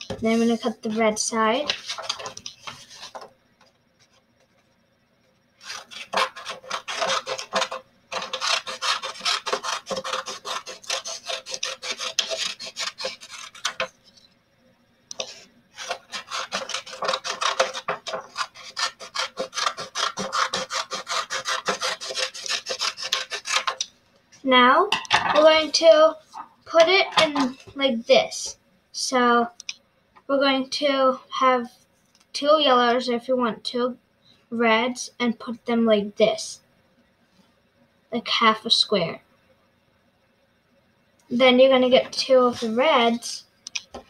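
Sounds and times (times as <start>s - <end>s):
scissors snipping paper: 5.6s - 13.9s, 15.2s - 23.8s.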